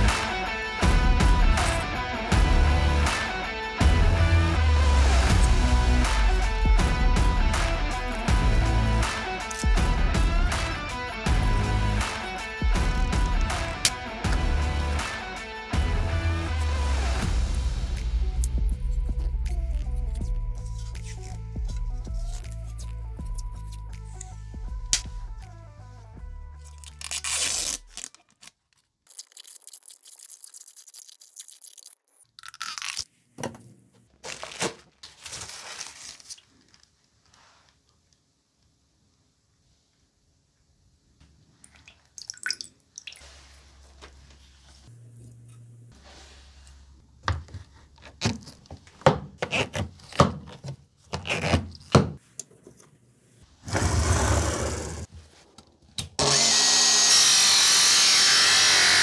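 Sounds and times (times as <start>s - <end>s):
adhesive tape peeling off roll: 26.6s - 33.1s.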